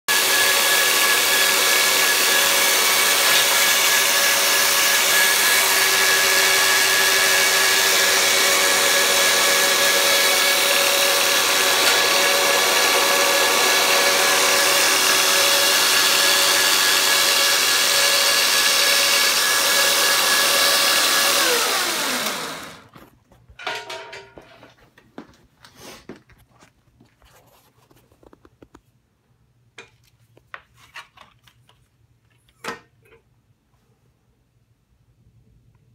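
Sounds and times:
belt grinder running: 0:00.1 - 0:22.9.

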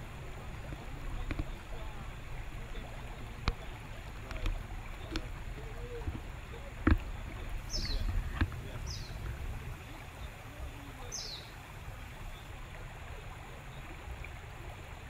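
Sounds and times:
low river rumble: 0:00.0 - 0:15.0
light knocks and clicks: 0:03.3 - 0:08.8.

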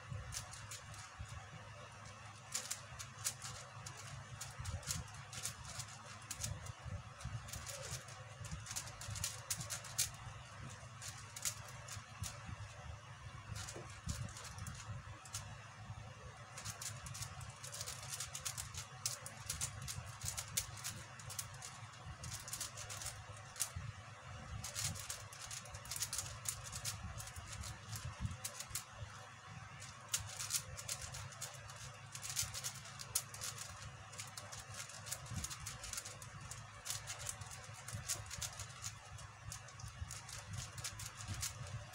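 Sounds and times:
plastic puzzle cube clicking: 0:02.4 - 0:06.7, 0:07.3 - 0:12.5, 0:13.6 - 0:15.4, 0:16.6 - 0:23.8, 0:24.6 - 0:28.9, 0:29.8 - 0:41.9.

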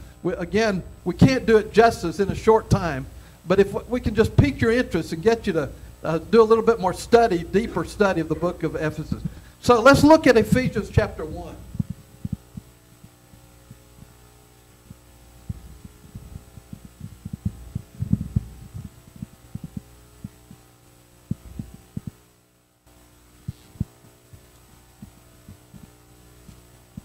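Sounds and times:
electrical hum: 0:00.0 - 0:27.0
microphone handling thumps and rubs: 0:09.1 - 0:14.2, 0:14.9 - 0:20.6, 0:21.3 - 0:22.2, 0:23.4 - 0:26.6.

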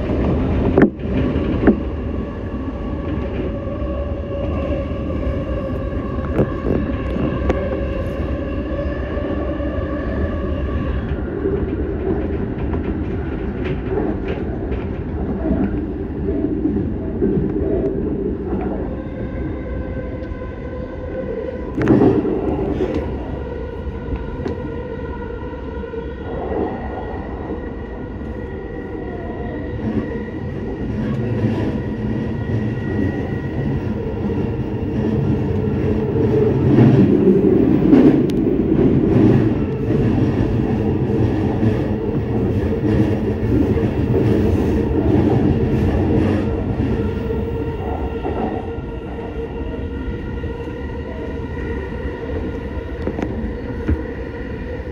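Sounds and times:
train wheels rumbling on rail: 0:00.0 - 0:54.9
clacks over rail joints: 0:11.1 - 0:15.9.

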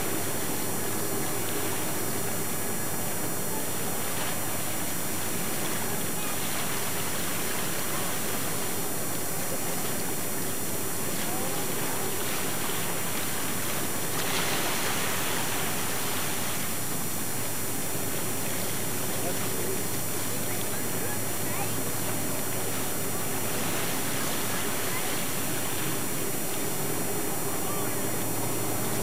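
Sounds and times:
faint low hum: 0:00.0 - 0:29.0
water noise: 0:00.0 - 0:29.0
wind: 0:00.0 - 0:29.0.

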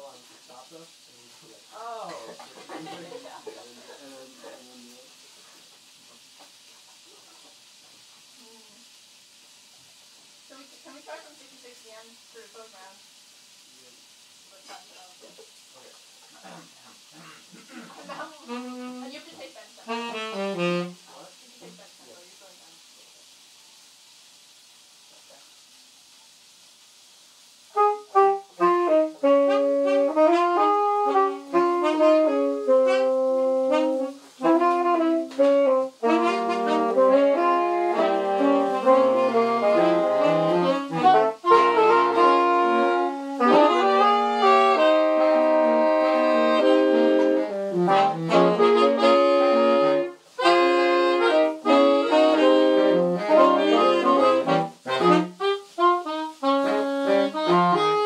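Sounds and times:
wind quartet playing: 0:19.9 - 0:21.0, 0:27.7 - 0:58.0.

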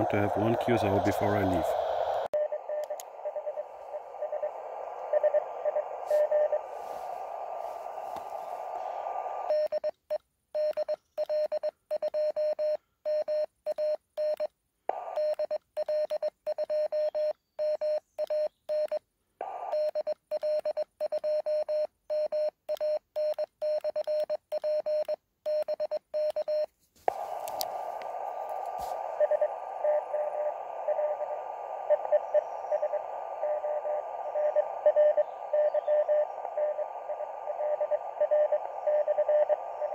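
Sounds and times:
radio receiver hiss: 0:00.0 - 0:09.8, 0:14.9 - 0:17.2, 0:18.3 - 0:20.6, 0:26.4 - 0:39.9
morse code tone: 0:29.0 - 0:39.9.

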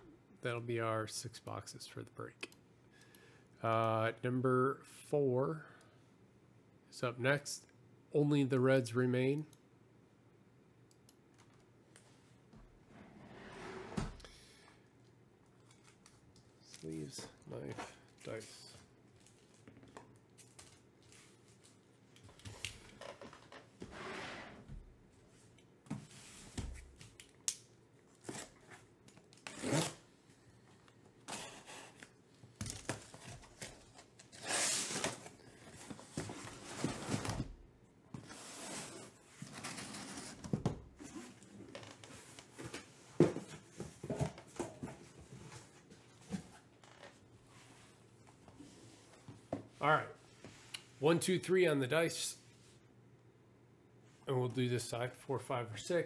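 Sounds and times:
cardboard and tape tearing: 0:29.4 - 0:30.0, 0:32.8 - 0:35.3.

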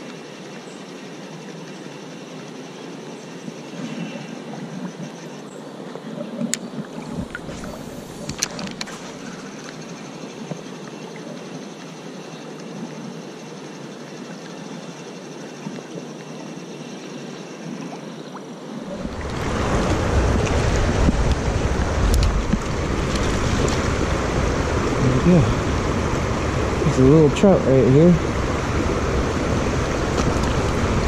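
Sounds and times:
water rushing over rocks: 0:18.8 - 0:31.0.

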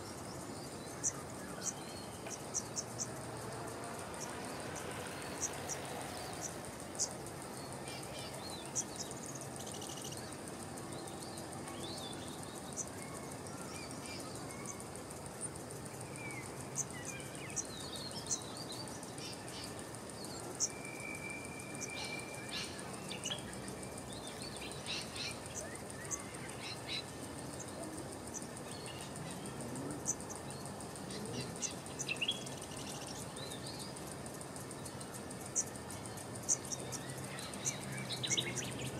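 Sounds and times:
insect drone: 0:00.0 - 0:38.9
small birds chirping: 0:15.8 - 0:38.9.

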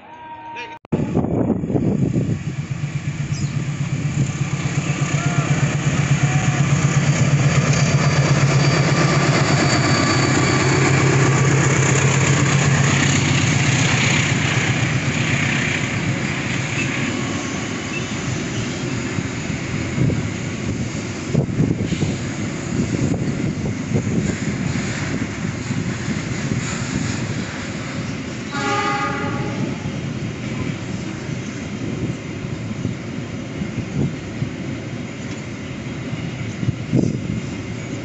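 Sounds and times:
diesel locomotive engine drone: 0:01.0 - 0:38.0
train wheels clattering: 0:03.4 - 0:19.2.

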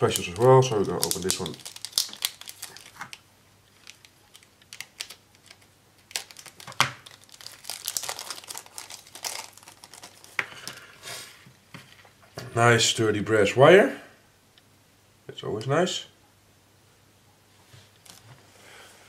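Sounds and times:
plastic bag crinkling: 0:00.0 - 0:10.9, 0:18.0 - 0:18.3.

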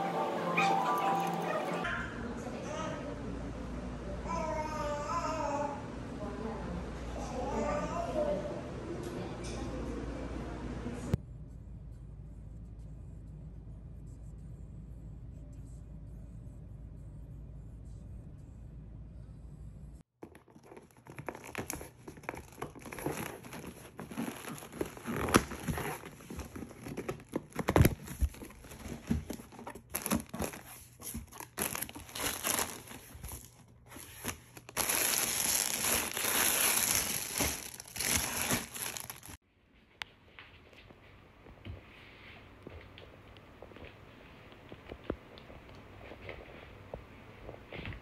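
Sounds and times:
plastic bag crinkling: 0:20.3 - 0:39.4.

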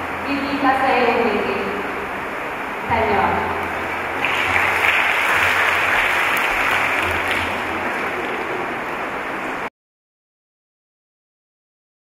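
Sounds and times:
audience clapping: 0:04.0 - 0:09.0.

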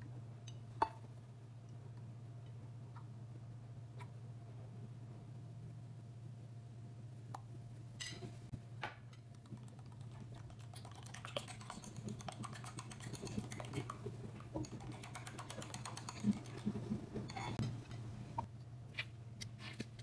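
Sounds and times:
low steady hum: 0:00.0 - 0:20.0
wire whisk clicking in bowl: 0:09.3 - 0:14.0, 0:14.6 - 0:16.7.

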